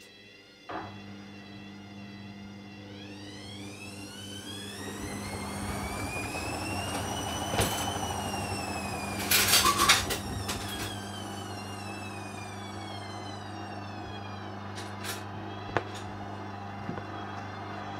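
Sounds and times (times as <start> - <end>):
washing machine motor whining: 0.0 - 17.9.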